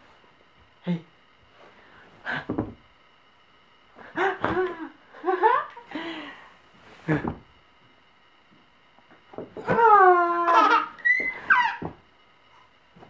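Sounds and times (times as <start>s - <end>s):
baby laughing: 10.3s - 11.9s.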